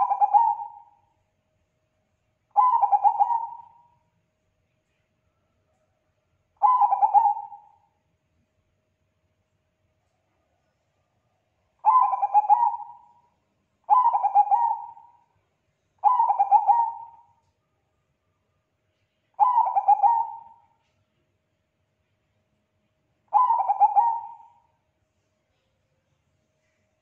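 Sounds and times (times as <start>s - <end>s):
dove cooing: 0.0s - 1.0s, 2.6s - 3.9s, 6.6s - 7.8s, 11.8s - 13.2s, 13.9s - 15.2s, 16.0s - 17.3s, 19.4s - 20.7s, 23.3s - 24.7s.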